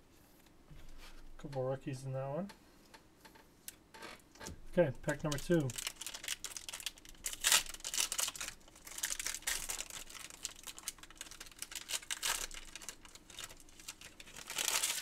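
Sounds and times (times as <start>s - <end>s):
foil card pack crinkling: 5.1s - 15.0s.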